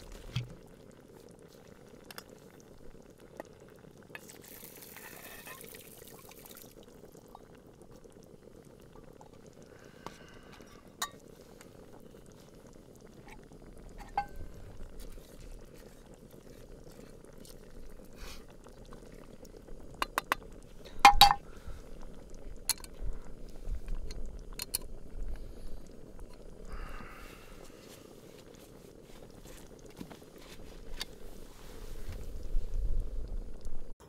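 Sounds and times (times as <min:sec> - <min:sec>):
steady low hiss: 0:04.1 - 0:34.0.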